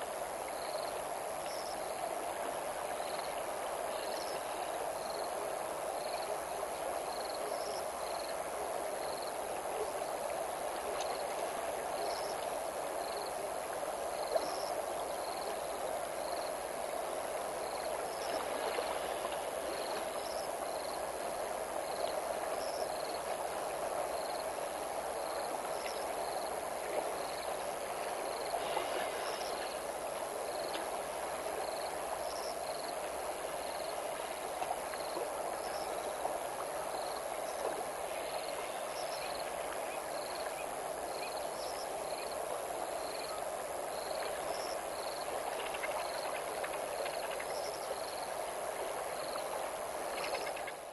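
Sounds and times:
river rushing: 0:07.8 - 0:41.2.

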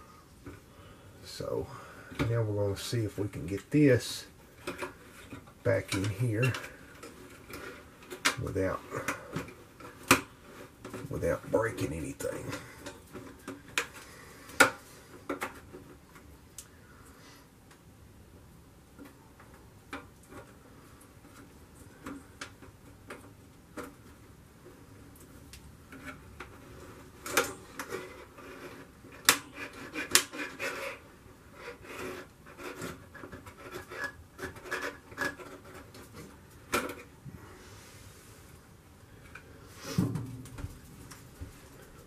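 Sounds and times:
clicks knocks and rubbing: 0:25.8 - 0:37.2.

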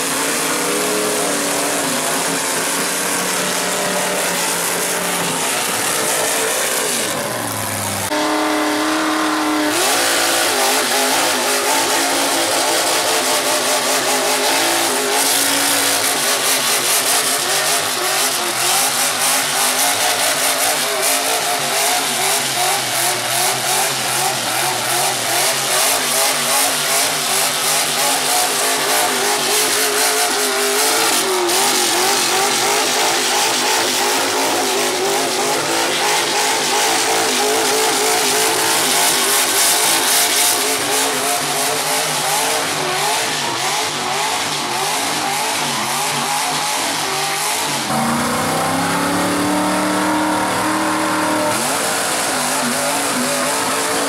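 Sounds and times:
truck engines revving hard: 0:00.0 - 0:54.0.

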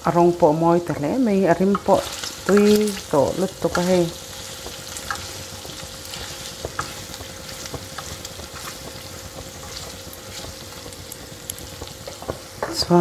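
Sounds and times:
meat sizzling in a pan: 0:00.0 - 0:13.0
spatula scraping and tapping pan: 0:03.6 - 0:10.9, 0:11.5 - 0:12.8.

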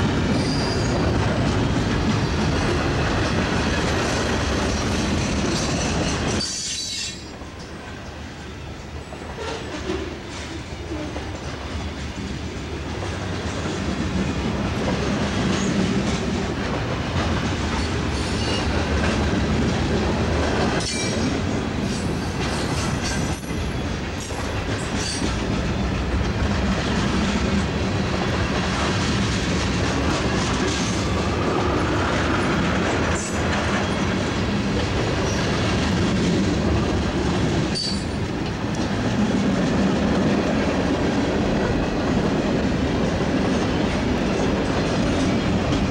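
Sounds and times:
freight train wheels rumbling: 0:00.0 - 0:45.9
high wheel squeals: 0:00.3 - 0:01.0.

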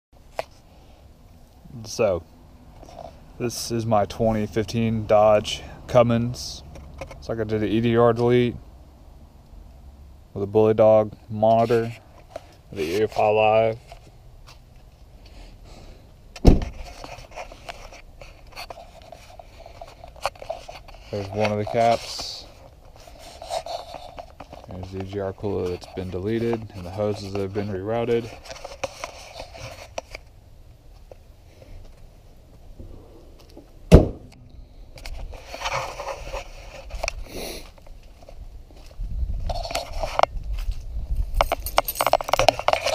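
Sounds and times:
rustling: 0:11.4 - 0:42.9
truck door shutting with thud: 0:16.4 - 0:16.8, 0:33.9 - 0:34.3
scuffing footsteps: 0:37.6 - 0:39.5.

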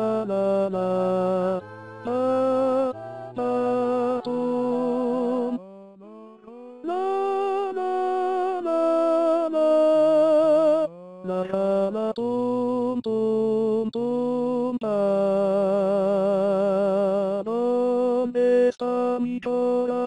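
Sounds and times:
choir singing chords: 0:00.0 - 0:12.7.

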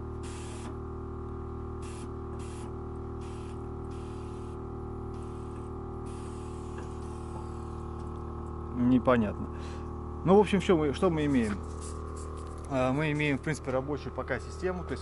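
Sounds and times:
steady mechanical hum: 0:00.0 - 0:15.0
air suspension valves hissing: 0:00.2 - 0:00.7, 0:01.8 - 0:08.1.

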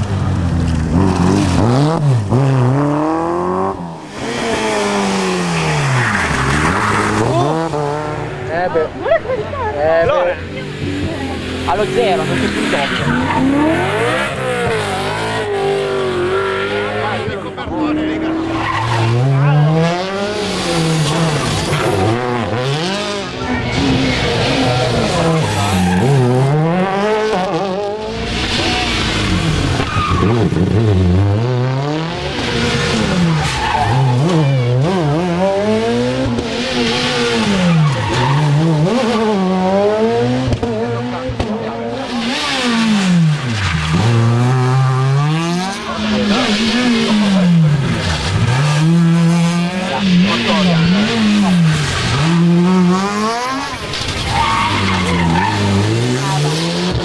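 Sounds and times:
rally car engines revving: 0:00.0 - 0:57.0.

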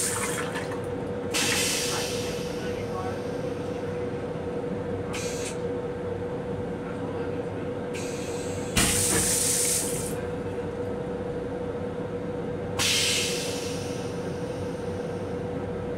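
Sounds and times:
toilet flushing: 0:00.0 - 0:02.2
constant hum: 0:00.0 - 0:15.9
train running noise: 0:00.0 - 0:15.9.

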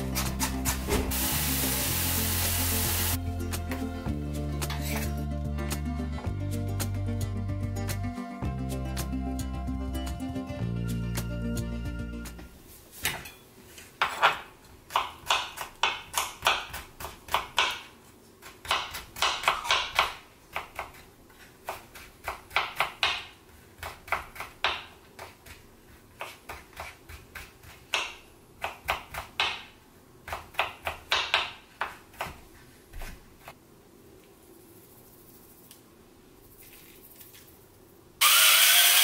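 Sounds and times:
knife chopping on cutting board: 0:14.0 - 0:25.6, 0:26.2 - 0:29.7, 0:30.3 - 0:33.2.

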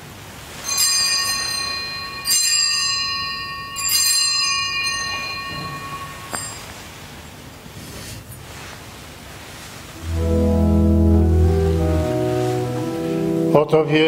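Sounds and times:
bell ringing: 0:00.6 - 0:06.9.

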